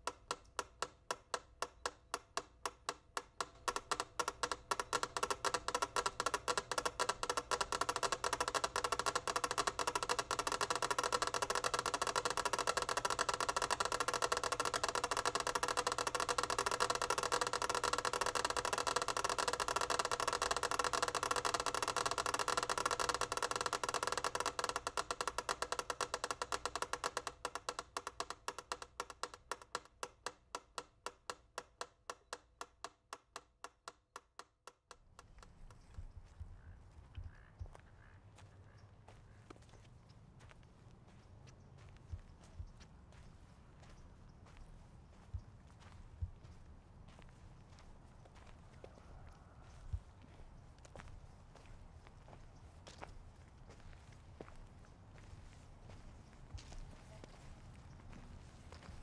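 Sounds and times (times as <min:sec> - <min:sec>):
film projector clattering: 0:00.0 - 0:35.6.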